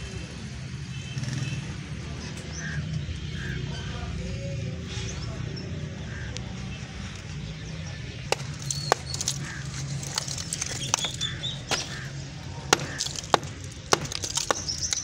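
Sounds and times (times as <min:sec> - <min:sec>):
birds chirping: 0:02.1 - 0:15.0
rubble being knocked and broken: 0:08.3 - 0:15.0.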